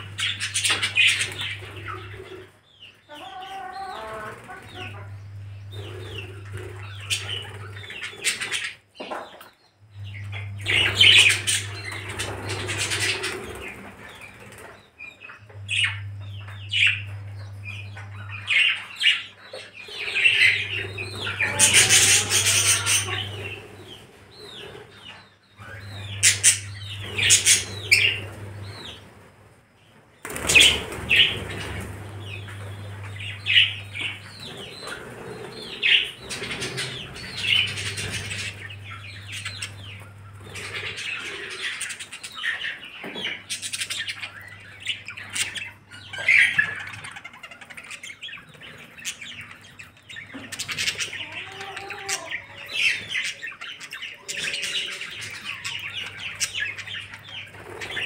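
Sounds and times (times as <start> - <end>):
budgerigars chattering: 0.0 - 9.3, 10.0 - 29.1, 30.3 - 58.0
wing flapping: 30.2 - 32.3.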